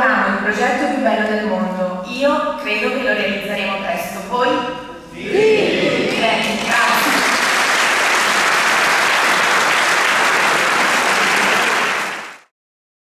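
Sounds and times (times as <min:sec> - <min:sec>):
audience applauding: 0:06.0 - 0:12.5.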